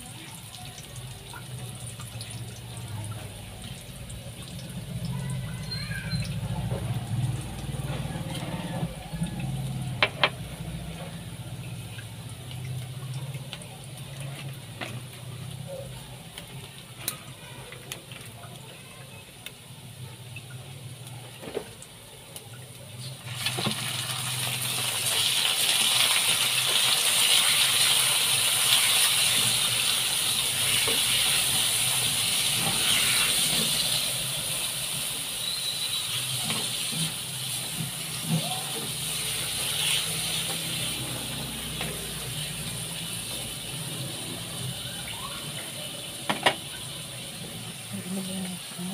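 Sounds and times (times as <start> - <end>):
food sizzling in a hot wok: 23.0 - 48.9.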